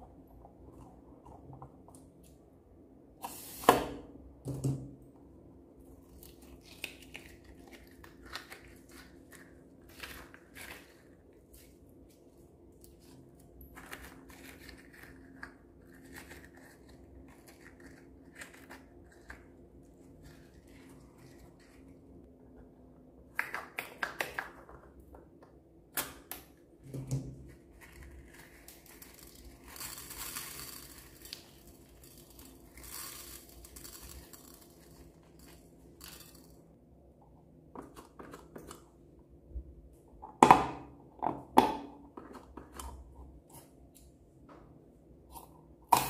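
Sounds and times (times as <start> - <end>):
beads pattering onto glass: 28.9 - 36.5.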